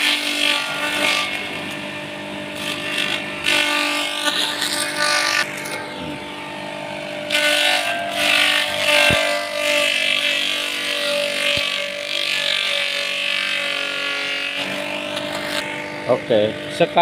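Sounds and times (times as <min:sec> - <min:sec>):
leaves being shredded: 0:00.0 - 0:06.1, 0:07.2 - 0:16.2
feed chopper machine running: 0:00.0 - 0:17.0.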